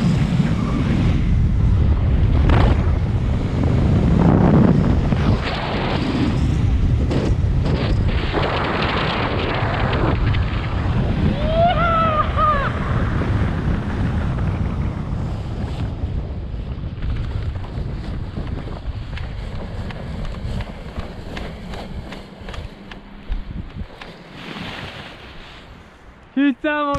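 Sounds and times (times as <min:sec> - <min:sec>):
wind buffeting microphone: 0:00.0 - 0:26.4
person whooping: 0:11.3 - 0:13.0.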